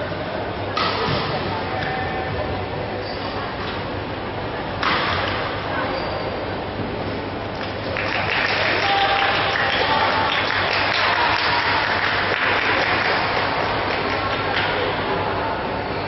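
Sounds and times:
spectators applauding: 7.7 - 14.9.

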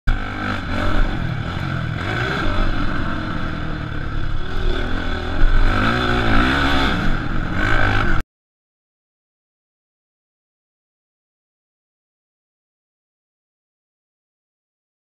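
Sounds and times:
dirt bike engine revving: 0.1 - 8.2.

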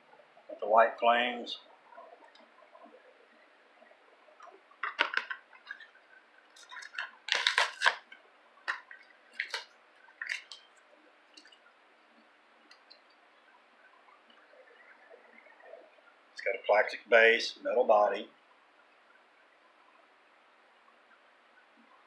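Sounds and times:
plastic blister pack crackling: 4.8 - 6.0, 6.6 - 11.6.

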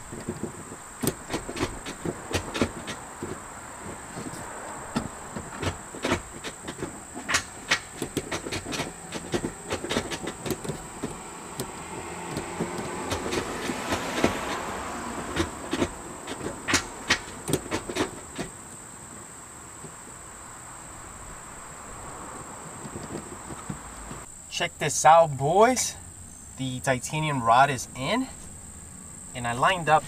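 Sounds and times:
metal clicks and rattles: 0.0 - 14.3.

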